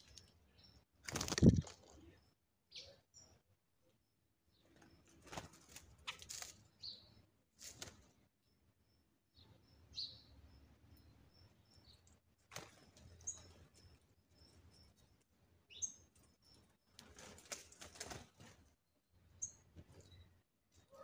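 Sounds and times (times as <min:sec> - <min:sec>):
small bird chirps: 0:00.0 - 0:03.4, 0:06.0 - 0:07.3, 0:08.9 - 0:18.2, 0:19.3 - 0:21.0
wings fluttering: 0:01.0 - 0:02.1, 0:04.8 - 0:06.7, 0:07.6 - 0:08.1, 0:12.4 - 0:13.8, 0:16.9 - 0:18.8.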